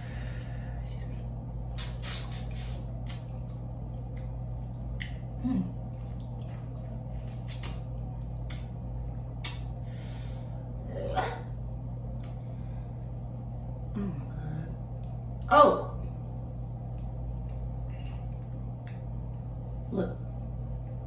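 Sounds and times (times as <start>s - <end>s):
steady low hum: 0.0s - 21.0s
wet chewing: 3.0s - 8.7s.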